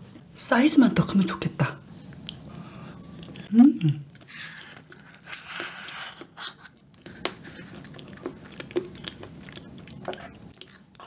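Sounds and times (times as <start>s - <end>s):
wet chewing and mouth sounds: 2.1s - 3.5s, 4.1s - 11.0s.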